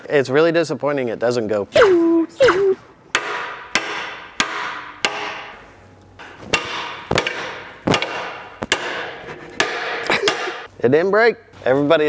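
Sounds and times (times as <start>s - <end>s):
hammer striking steel ringing: 3.2s - 5.6s, 6.2s - 10.7s.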